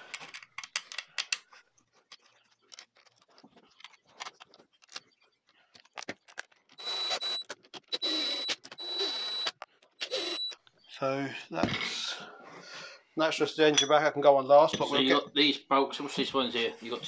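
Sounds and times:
impact driver whirring: 6.8s - 10.5s.

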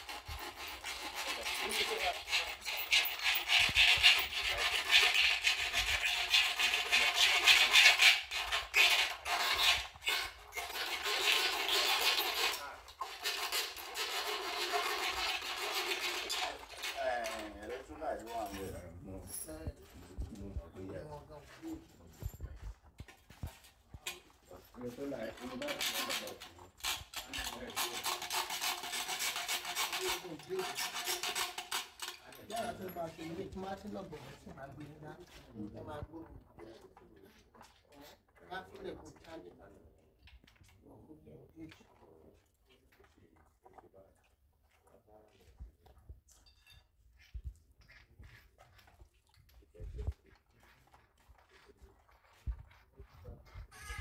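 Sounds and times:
scratchy rasping rub: 0.0s - 18.6s, 25.4s - 34.5s.

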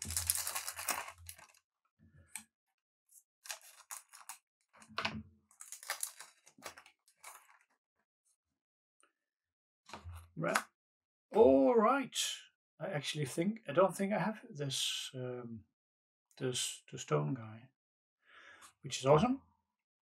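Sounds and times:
paper and foil rustling: 0.0s - 1.6s, 3.5s - 4.4s, 5.6s - 7.7s.

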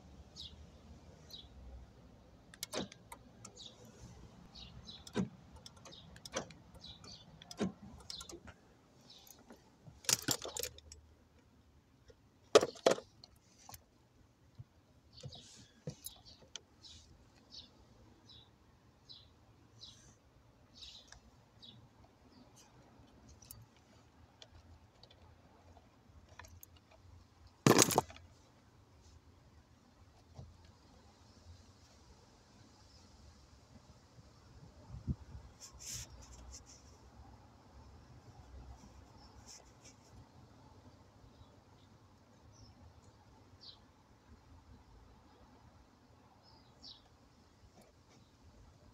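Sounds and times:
door lock actuator clicks: 2.6s - 3.6s, 5.0s - 8.4s
wiring clicks and rustles: 9.2s - 11.1s.

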